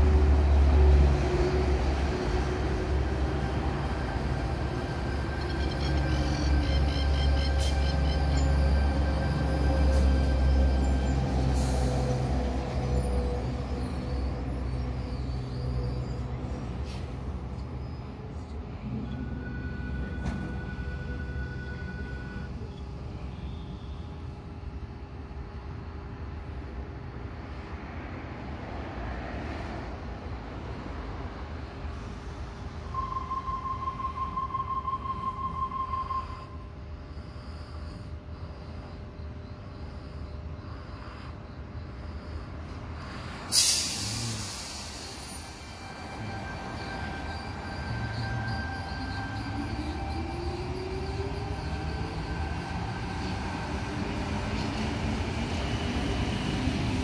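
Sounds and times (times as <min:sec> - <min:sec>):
train pulling away: 0:00.0 - 0:24.0, 0:30.9 - 0:38.1, 0:41.9 - 0:57.0
idling train hum: 0:00.0 - 0:57.0
air hiss: 0:43.0 - 0:46.1.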